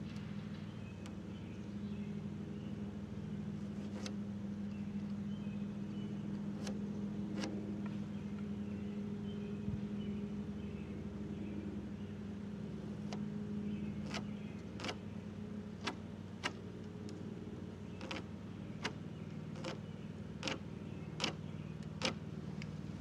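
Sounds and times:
low mechanical hum: 0.0s - 23.0s
marking tool ticking on timber: 14.0s - 15.0s, 18.0s - 20.6s, 21.2s - 22.2s.

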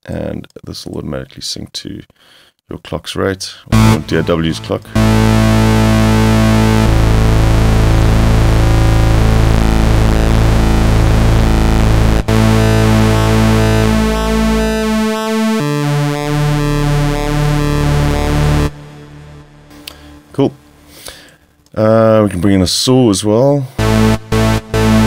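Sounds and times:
shimmering square-wave synthesizer notes: 3.7s - 21.0s, 23.8s - 25.0s.

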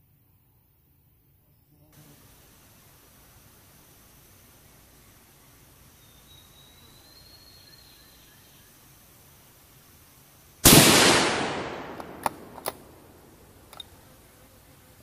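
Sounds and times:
rifle shot: 10.6s - 13.2s
small clicks: 11.9s - 12.9s.

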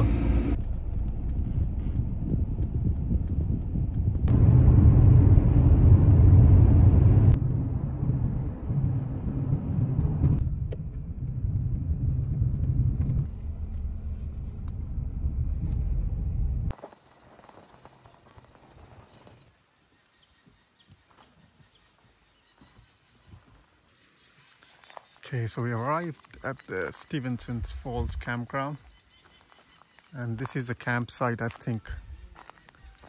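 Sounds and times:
car engine and tyres rumbling: 0.0s - 16.8s.

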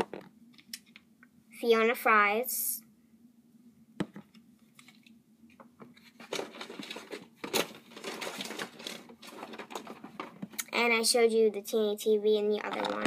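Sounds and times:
toys rustling: 4.1s - 10.6s, 12.5s - 13.0s.

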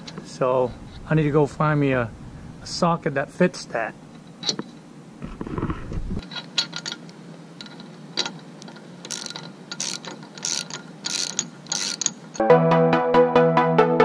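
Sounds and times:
hand ratchet clicking: 7.6s - 12.4s.

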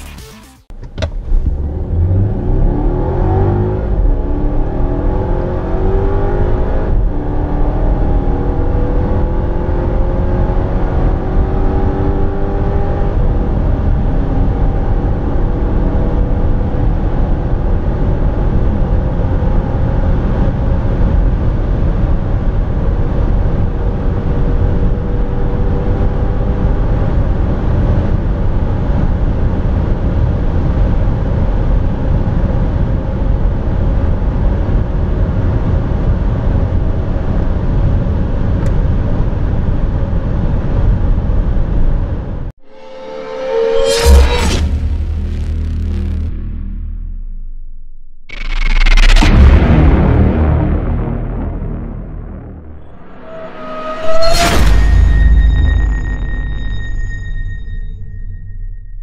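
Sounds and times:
car engine accelerating: 1.1s - 29.8s, 42.6s - 55.2s.

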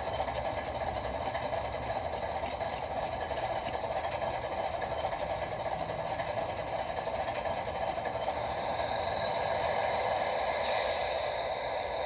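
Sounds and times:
model train wheels clattering: 0.0s - 12.0s
thin high whine: 5.0s - 12.0s.

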